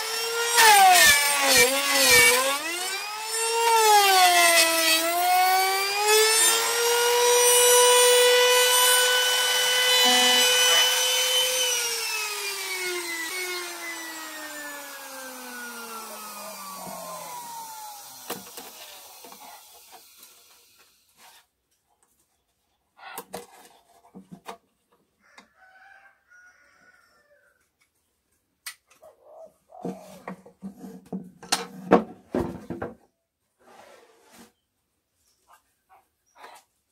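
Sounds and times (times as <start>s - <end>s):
electric router whining: 0.0s - 20.4s.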